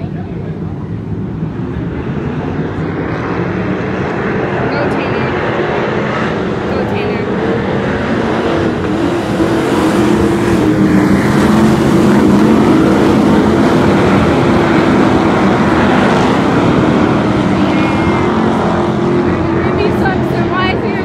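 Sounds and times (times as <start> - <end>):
race car engines droning: 0.0 - 21.0.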